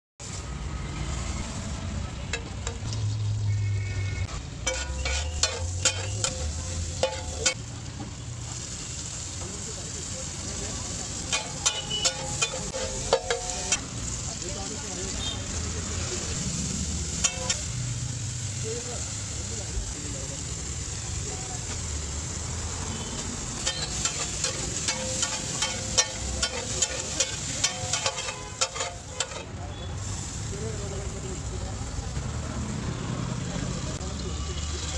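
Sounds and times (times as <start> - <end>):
metal spatula clanking on griddle: 2.3 - 2.9, 4.6 - 7.6, 11.1 - 13.9, 17.1 - 17.7, 23.6 - 29.6
butter sizzling on griddle: 4.3 - 32.1.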